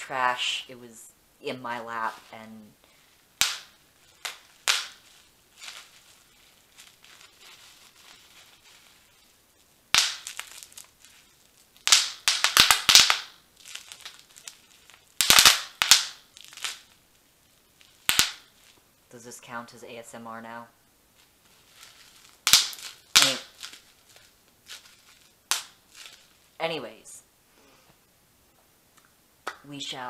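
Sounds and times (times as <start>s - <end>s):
plastic crinkling: 2.0s - 18.9s, 21.1s - 26.6s
bubble wrap popping: 3.3s - 19.0s, 21.1s - 26.6s.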